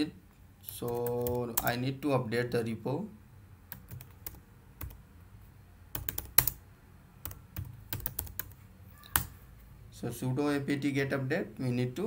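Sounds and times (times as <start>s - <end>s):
keyboard keys clicking: 6.0s - 6.6s, 7.2s - 9.3s.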